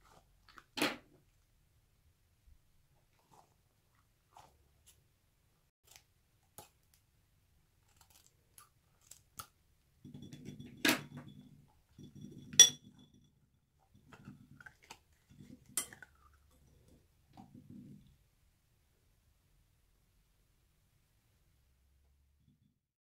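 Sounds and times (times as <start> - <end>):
clinks on glass bowl: 10.0 - 13.3.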